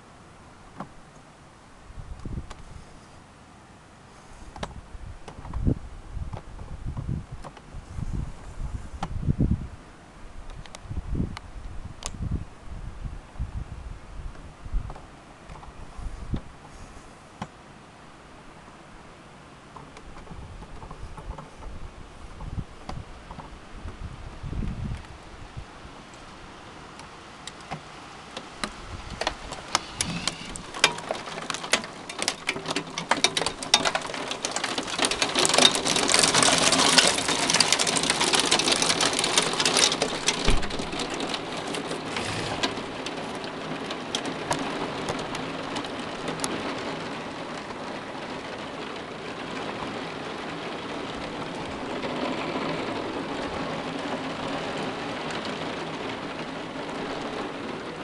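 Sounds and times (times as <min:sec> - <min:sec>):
hailstones pelting: 0:28.4 - 0:58.0.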